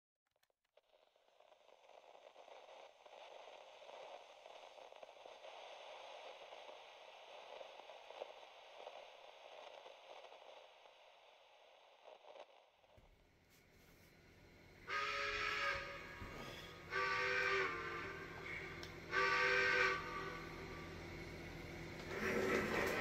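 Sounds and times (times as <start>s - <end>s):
model train motor whir: 14.9s - 23.0s.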